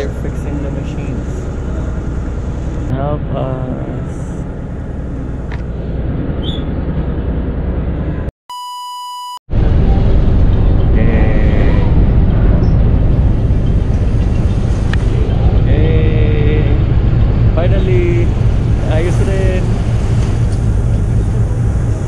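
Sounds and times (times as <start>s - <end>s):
ferry engine rumble and wind: 0.0s - 8.3s, 9.5s - 22.0s
electronic beep: 8.5s - 9.4s.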